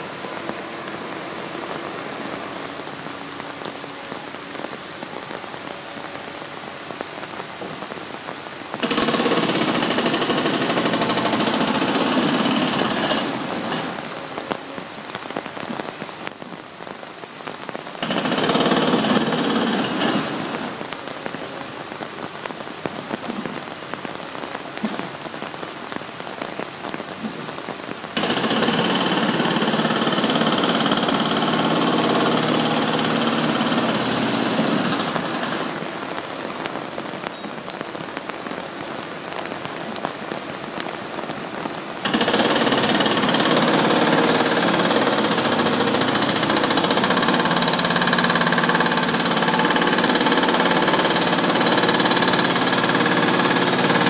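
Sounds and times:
hiss of falling water: 0.0s - 54.0s
excavator diesel engine: 8.9s - 14.2s, 28.2s - 35.9s, 42.1s - 54.0s.

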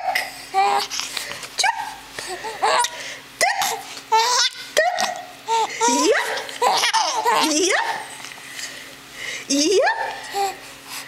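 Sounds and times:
infant giggling: 2.4s - 7.7s.

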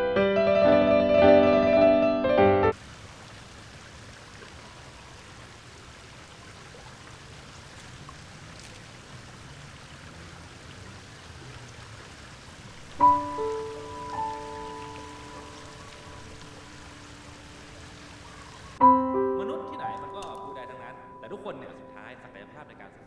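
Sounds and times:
piano music: 0.0s - 2.8s, 13.0s - 18.2s, 18.8s - 23.0s
faint running water: 2.7s - 18.8s.

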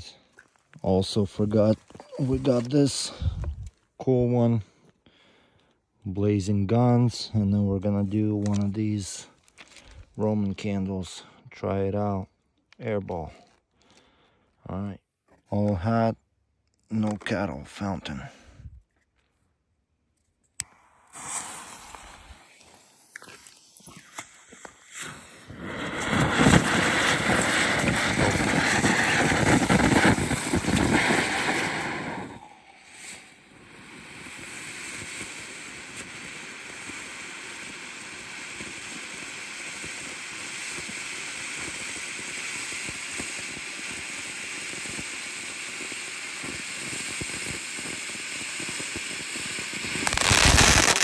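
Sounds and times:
firework fountain hissing: 20.7s - 51.0s.

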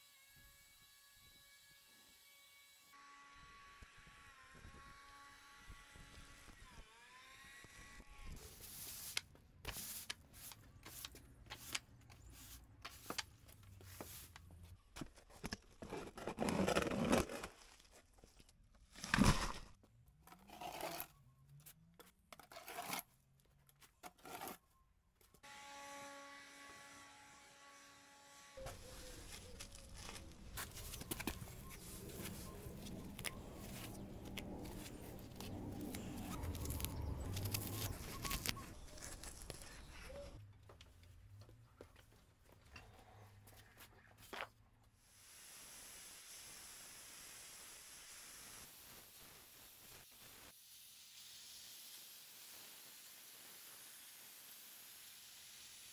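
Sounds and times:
broom and shovel scraping concrete: 8.4s - 14.4s, 28.6s - 40.4s
weeds being torn out rustling: 28.6s - 40.4s.

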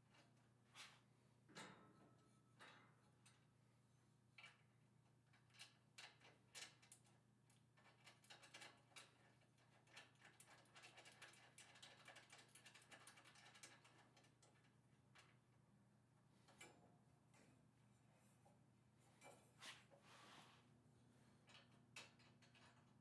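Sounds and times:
plastic clicks and rattles on metal rail: 5.3s - 15.4s, 21.5s - 23.0s.

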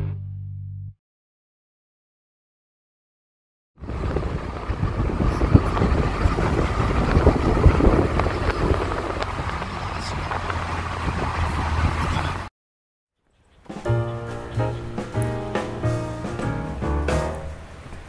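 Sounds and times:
car engine and road noise: 3.8s - 12.5s, 13.6s - 18.0s.

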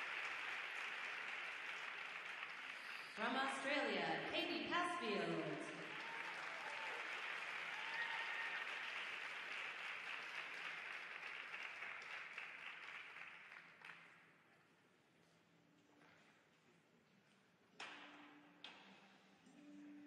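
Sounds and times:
crowd applauding: 0.0s - 3.7s, 5.4s - 14.2s.

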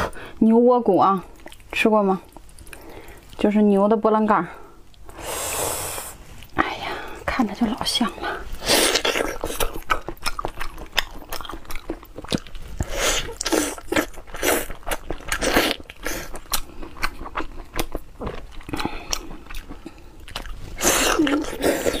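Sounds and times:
chewing meat with wet clicks: 1.4s - 3.5s, 9.0s - 20.6s.

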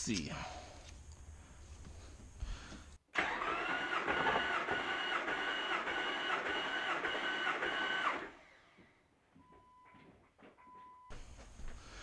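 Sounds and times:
starter motor cranking engine: 3.1s - 8.8s.

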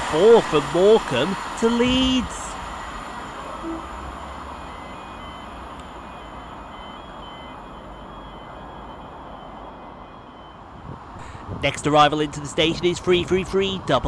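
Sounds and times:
short high beeps: 3.5s - 5.4s.

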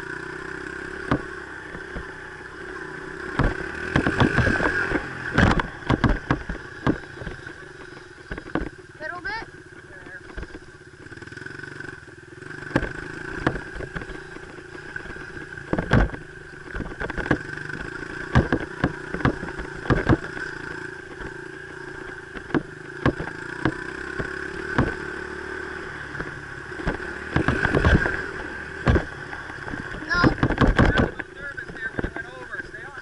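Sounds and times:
dirt bike engine running: 0.0s - 33.0s
bike knocking and clattering: 0.2s - 33.0s.

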